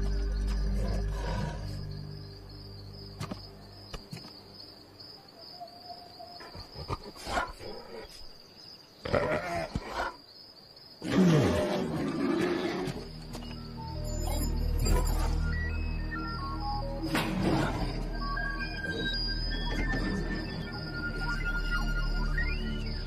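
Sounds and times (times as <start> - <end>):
grunts and breathy sounds: 6.4 - 8.4.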